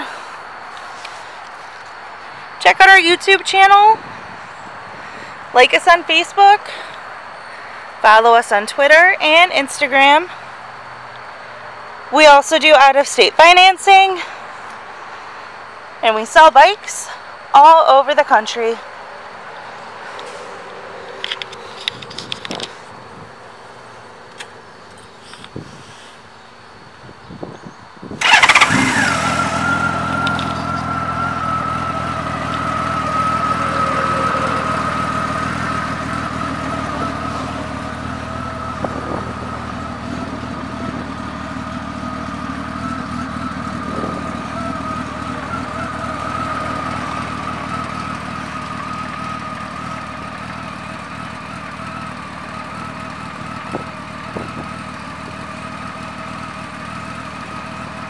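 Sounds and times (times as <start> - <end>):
motorcycle engine starting and idling: 19.8 - 58.0.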